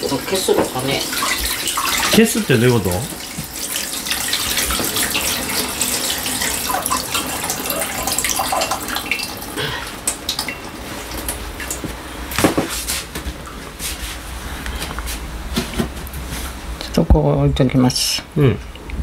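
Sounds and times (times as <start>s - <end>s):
tap water running into sink: 0.0s - 12.6s.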